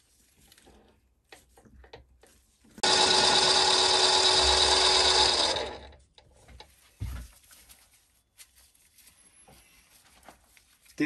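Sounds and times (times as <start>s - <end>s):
lathe motor whine: 2.8s - 5.9s.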